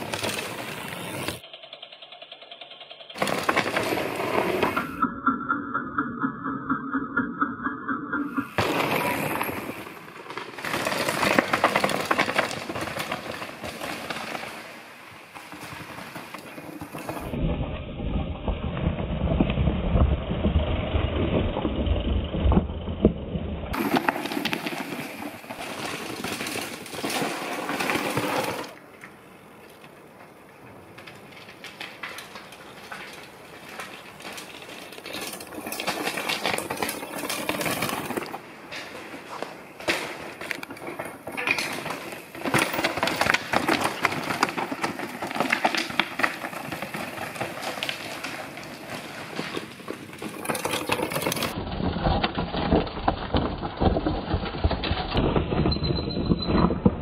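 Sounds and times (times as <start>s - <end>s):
bike tyres crunching over stones: 0.0s - 1.4s, 3.2s - 5.0s, 8.6s - 17.4s, 23.7s - 57.0s
rattling clicks from bike chain: 1.2s - 4.5s
wind rumble on microphone: 17.3s - 23.8s.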